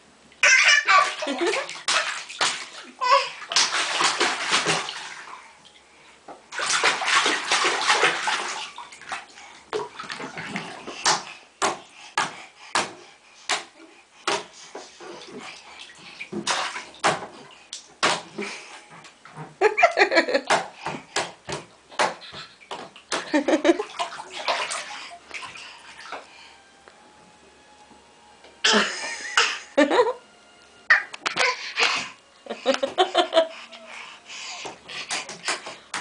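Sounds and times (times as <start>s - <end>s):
child splashing bathwater: 0.4s - 5.8s, 6.5s - 18.9s, 19.6s - 26.4s, 30.9s - 36.0s
hands slapping water: 1.0s - 5.3s, 6.6s - 14.6s, 16.2s - 18.6s, 20.4s - 26.3s, 34.6s - 36.0s.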